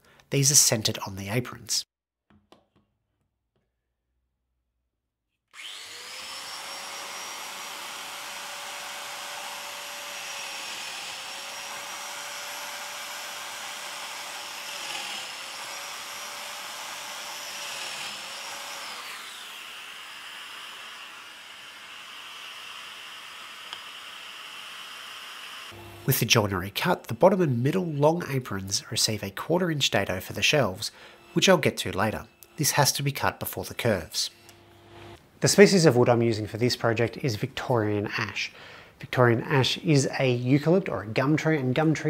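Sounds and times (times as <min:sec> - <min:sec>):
power joiner motor whining: 0:05.5 - 0:26.2.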